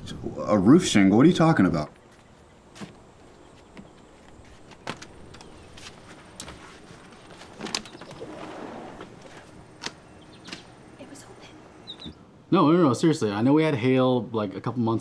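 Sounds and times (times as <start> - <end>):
sliding glass door rolling open: 7.9 - 9.5.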